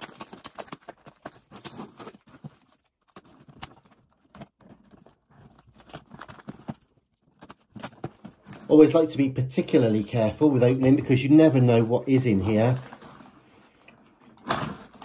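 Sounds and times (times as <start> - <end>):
knife scraping packing tape: 0.0 - 2.2.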